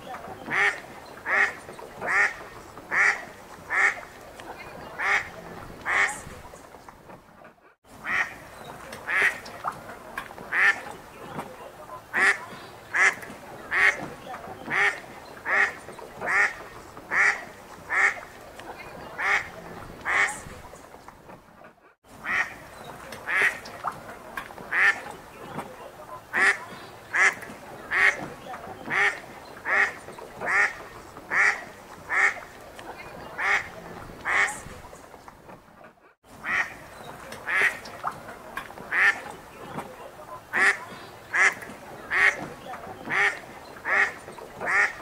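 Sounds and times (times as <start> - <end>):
ducks quacking: 0.0 - 6.6, 7.9 - 20.8, 22.1 - 35.1, 36.3 - 45.0.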